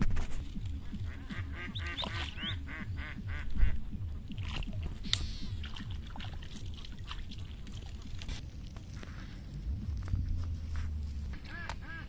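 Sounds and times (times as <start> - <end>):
low rumble: 0.0 - 12.0
birds quacking: 0.7 - 4.3, 11.3 - 12.0.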